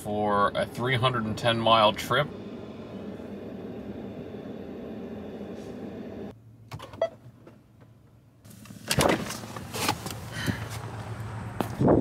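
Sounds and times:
vehicle cab hum: 0.0 - 12.0.

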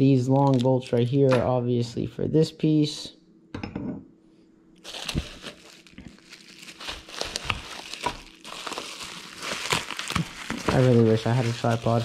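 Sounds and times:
bubble wrap crinkling: 0.2 - 1.0, 4.8 - 12.0.

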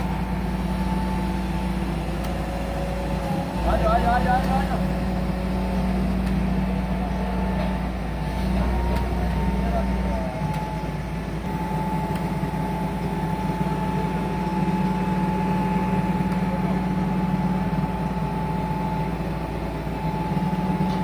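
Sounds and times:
diesel engine drone: 0.0 - 21.0.

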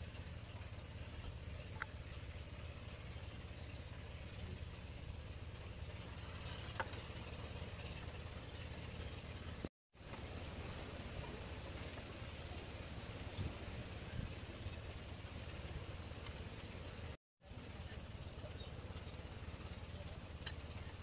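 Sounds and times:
low engine-like hum: 0.0 - 21.0
faint clicks: 16.2 - 16.4, 19.9 - 21.0.

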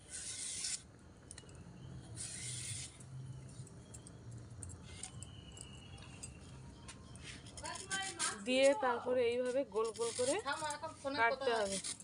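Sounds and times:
knife scraping stem: 0.0 - 0.8, 2.2 - 3.0, 9.4 - 12.0.

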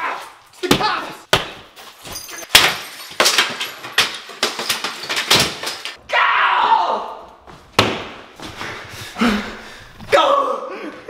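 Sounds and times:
sledgehammer hitting drywall: 0.6 - 1.7, 7.8 - 8.2.

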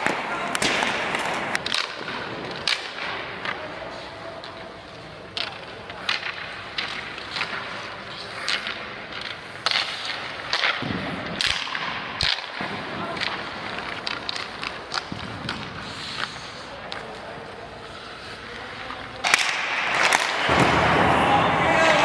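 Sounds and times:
hockey sticks and pucks clacking: 0.0 - 22.0
skate blades scraping ice: 4.8 - 22.0.

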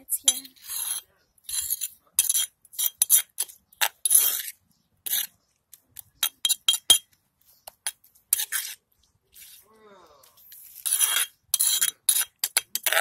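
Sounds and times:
metal spoon scraping stone mortar: 0.0 - 9.6, 10.3 - 13.0.

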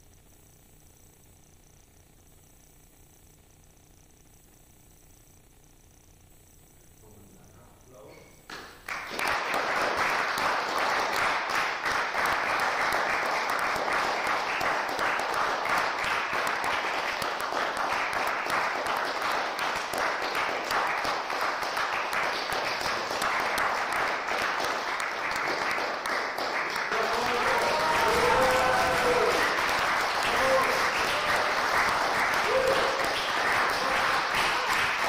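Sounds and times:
audience applauding: 8.5 - 35.0.

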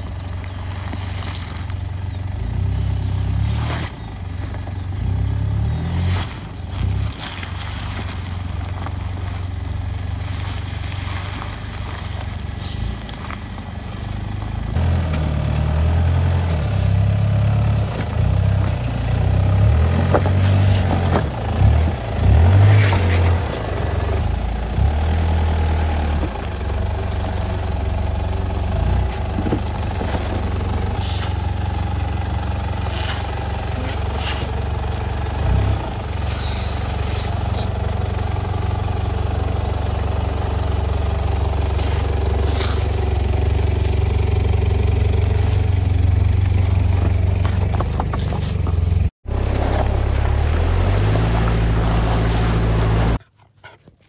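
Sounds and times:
road noise: 0.0 - 54.0
vehicle engine running: 0.0 - 54.0
engine note rising: 49.2 - 53.2.

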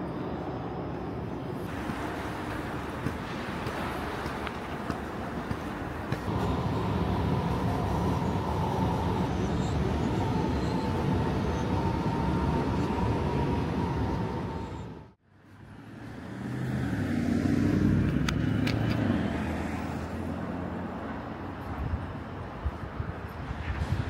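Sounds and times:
road traffic noise: 0.0 - 24.0.

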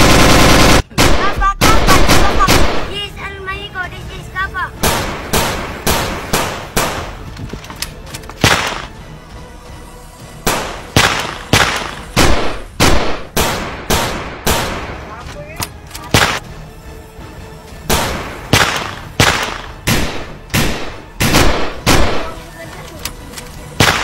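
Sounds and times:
gunshots with echo: 0.0 - 2.9, 4.8 - 7.2, 8.4 - 8.9, 10.4 - 15.1, 16.1 - 16.5, 17.9 - 22.3, 23.8 - 24.0.

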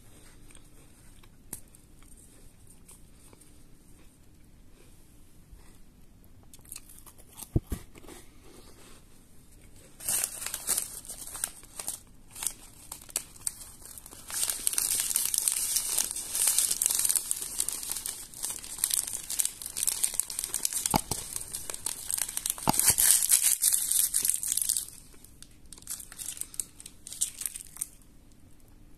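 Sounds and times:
plastic wrapper crinkling and tearing: 10.0 - 28.5.

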